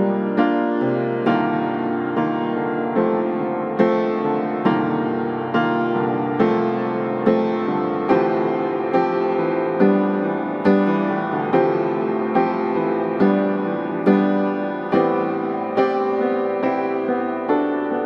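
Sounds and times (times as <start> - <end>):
soft keyboard music: 0.0 - 18.0.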